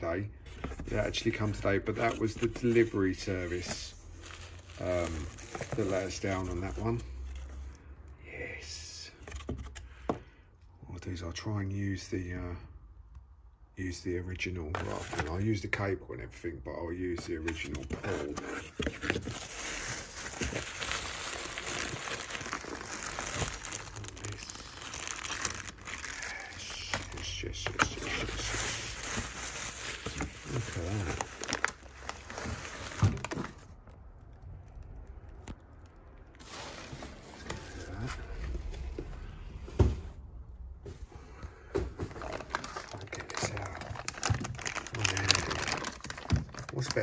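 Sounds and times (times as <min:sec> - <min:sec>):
bubble wrap and bags crinkling: 0:00.0 - 0:07.8, 0:14.8 - 0:15.5, 0:17.0 - 0:39.0, 0:41.7 - 0:47.0.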